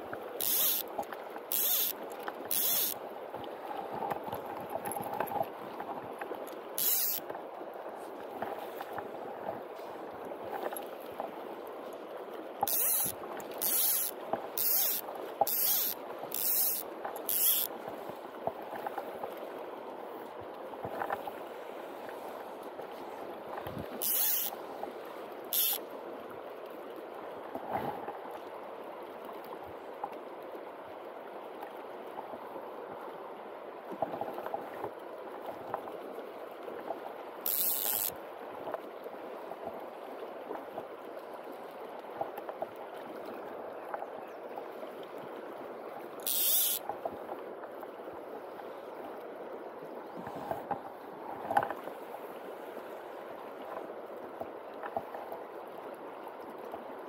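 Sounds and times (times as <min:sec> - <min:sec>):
river current flowing: 0:00.0 - 0:57.0
fly reel buzzing: 0:00.4 - 0:00.9, 0:01.5 - 0:03.0, 0:06.8 - 0:07.2, 0:12.7 - 0:17.7, 0:24.0 - 0:24.5, 0:25.5 - 0:25.8, 0:37.5 - 0:38.1, 0:46.2 - 0:46.8.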